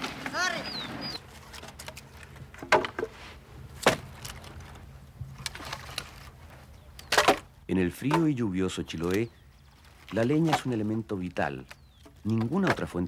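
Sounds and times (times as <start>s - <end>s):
firewood knocking together: 1.6s - 3.2s.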